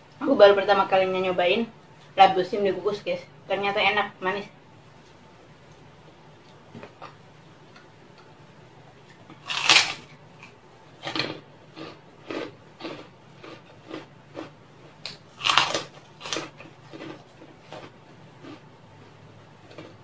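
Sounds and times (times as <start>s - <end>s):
crunchy chewing: 9.0s - 18.8s, 19.5s - 20.0s
cracker bitten with crunch: 9.1s - 18.7s.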